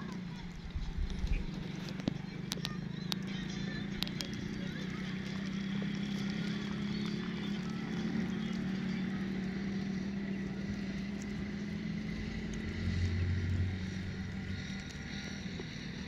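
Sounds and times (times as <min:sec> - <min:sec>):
engine droning: 0:00.0 - 0:16.0
deep hum: 0:03.9 - 0:16.0.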